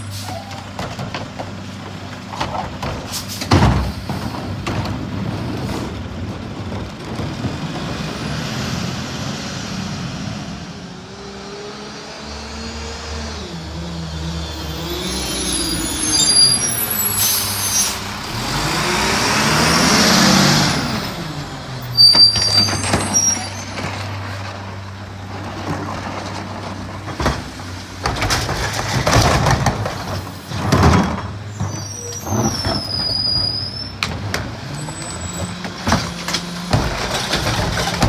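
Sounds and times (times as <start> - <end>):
air brakes squealing and hissing: 0.0 - 0.7, 3.1 - 4.5, 14.4 - 18.2, 21.9 - 23.9, 31.5 - 34.0
garbage truck engine passing: 0.0 - 31.7.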